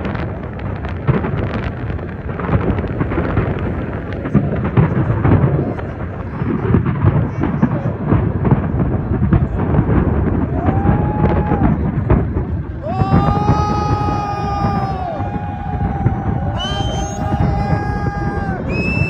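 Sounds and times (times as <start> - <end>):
fireworks bursting: 0.0 - 19.0
fireworks crackle: 0.0 - 19.0.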